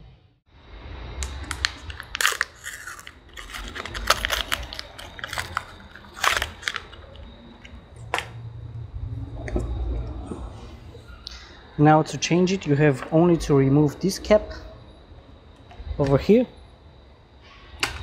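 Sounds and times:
packaging crackling: 0:01.2 - 0:08.4.

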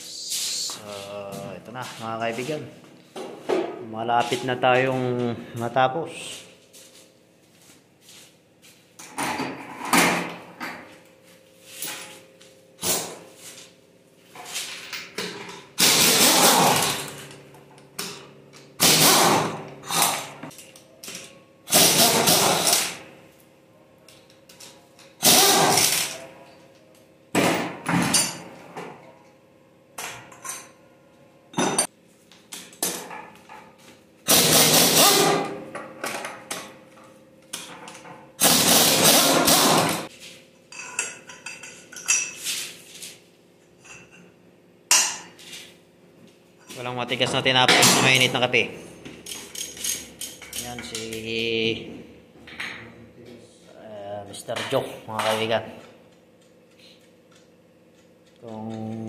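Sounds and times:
metal tools clanking on engine parts: 0:40.7 - 0:42.5, 0:49.0 - 0:51.2.

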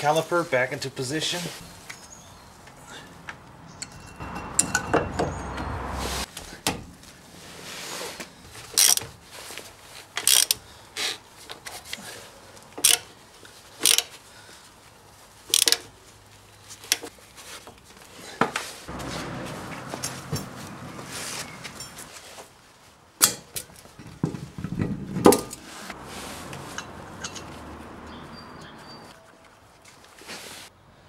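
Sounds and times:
scraping rumbling: 0:18.9 - 0:22.1, 0:24.0 - 0:29.1.

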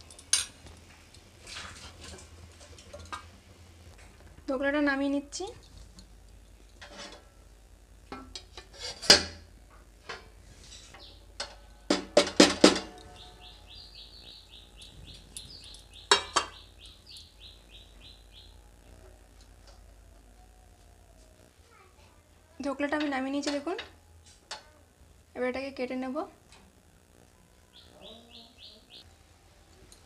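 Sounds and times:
metal cookware clanking: 0:00.0 - 0:00.6
bird chirping: 0:11.0 - 0:11.3, 0:13.0 - 0:18.7, 0:27.6 - 0:29.1.

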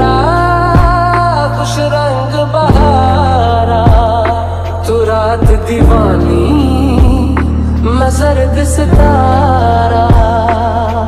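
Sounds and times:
song with deep bass: 0:00.0 - 0:11.0
low drum hit: 0:00.8 - 0:01.2, 0:02.7 - 0:03.2, 0:03.8 - 0:04.3, 0:05.4 - 0:07.7, 0:08.9 - 0:09.3.

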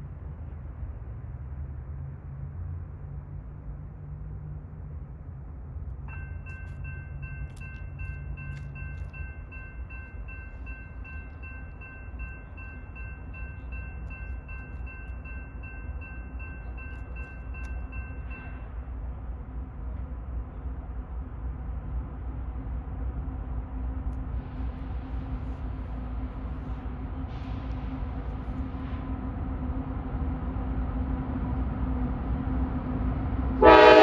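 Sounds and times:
locomotive engine rumble: 0:00.0 - 0:34.0
locomotive air horn blast: 0:33.6 - 0:34.0.

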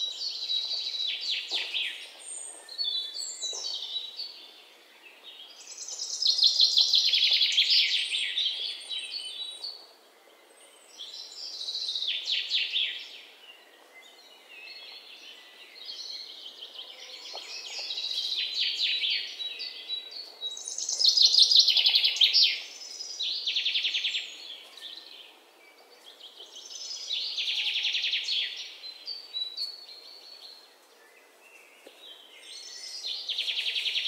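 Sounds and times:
songbird chirping and trilling: 0:00.0 - 0:34.0.

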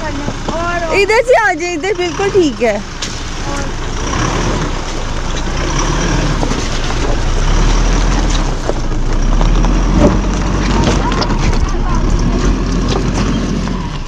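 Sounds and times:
vehicle engine and tyre rumble: 0:00.0 - 0:14.0
stones knocking and clattering: 0:06.3 - 0:13.7.

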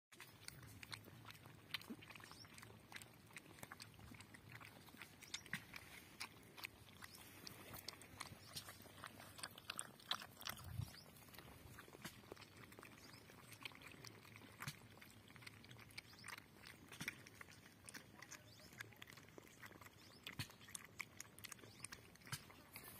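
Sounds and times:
puppies lapping and chewing: 0:00.1 - 0:22.9.

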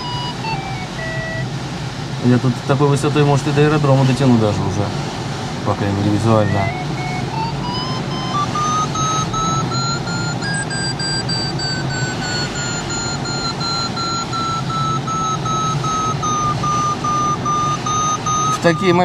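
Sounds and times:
variometer beeping: 0:00.0 - 0:01.6, 0:06.3 - 0:19.0.

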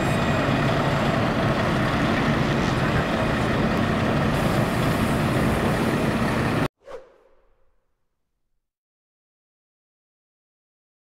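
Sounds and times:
bus engine running: 0:00.0 - 0:06.7
tram pulling away: 0:00.0 - 0:06.7.

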